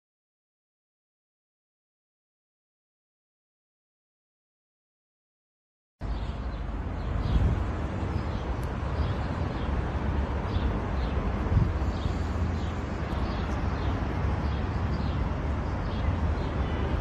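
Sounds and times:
steady low city rumble: 6.0 - 17.0.

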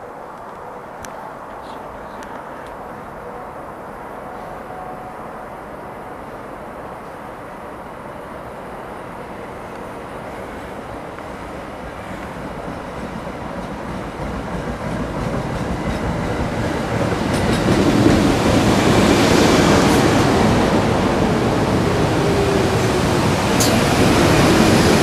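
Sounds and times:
train wheels rumbling on rail: 9.2 - 25.0.

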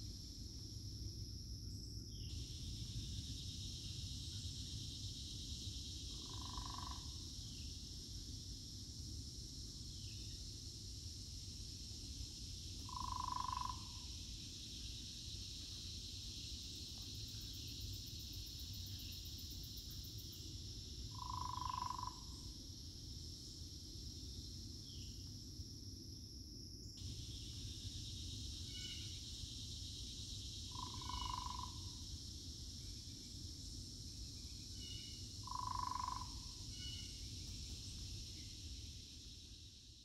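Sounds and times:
high-pitched insect chorus: 0.0 - 40.0
frog calling: 6.1 - 7.2, 12.8 - 14.1, 21.1 - 22.4, 30.7 - 32.0, 34.9 - 37.1.

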